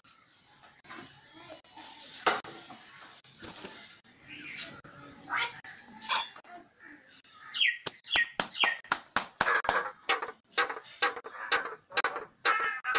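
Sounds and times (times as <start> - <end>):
myna bird calling: 6.8 - 8.9.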